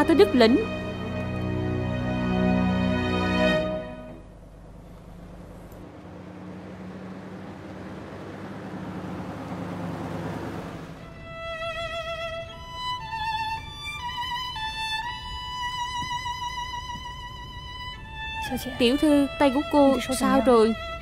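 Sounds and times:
solo violin melody: 0.0 - 4.2, 11.0 - 21.0
car engine approaching: 0.0 - 21.0.

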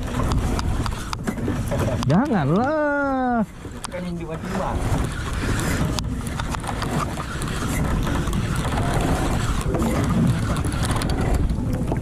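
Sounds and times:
fishing reel clicking: 3.6 - 11.8.

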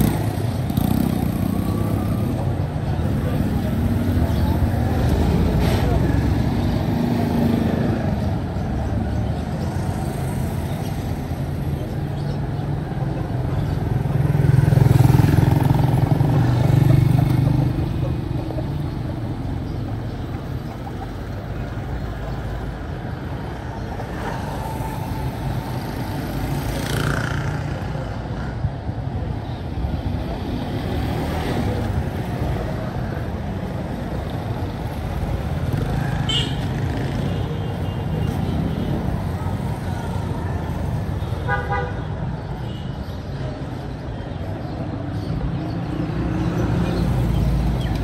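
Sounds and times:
steady hum of traffic: 0.0 - 48.0.

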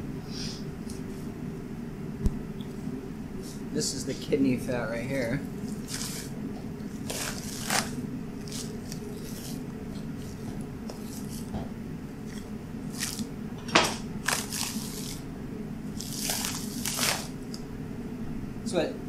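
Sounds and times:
steady low hum: 0.0 - 19.0
wet tearing and squishing: 7.0 - 9.6, 12.3 - 13.3, 14.2 - 15.2, 15.9 - 17.6.

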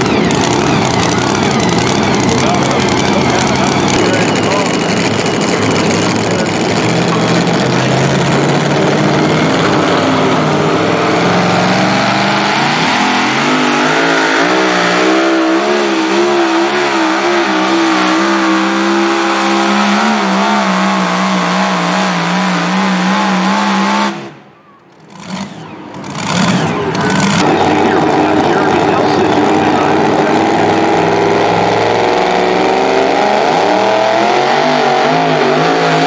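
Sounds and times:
supercharged engine at full throttle: 0.0 - 36.0.

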